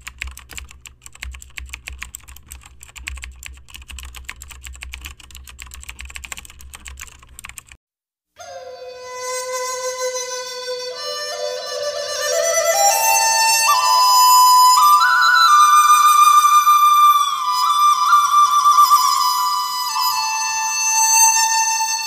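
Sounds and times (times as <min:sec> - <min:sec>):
keyboard key clicks: 0:00.0 - 0:07.7
music with held notes: 0:08.4 - 0:22.0.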